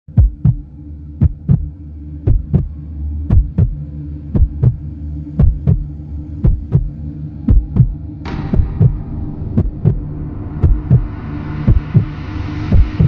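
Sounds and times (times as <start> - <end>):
heartbeat thumps: 0.1 - 0.6, 1.2 - 2.7, 3.3 - 3.8, 4.4 - 4.8, 5.4 - 9.0, 9.6 - 10.0, 10.6 - 11.1, 11.7 - 12.1, 12.7 - 13.0
steady low hum: 0.1 - 13.0.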